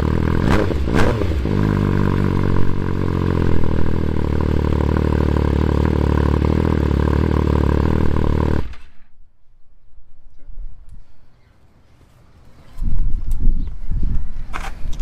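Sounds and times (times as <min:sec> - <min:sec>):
motorcycle engine idling: 0:01.4 - 0:09.0.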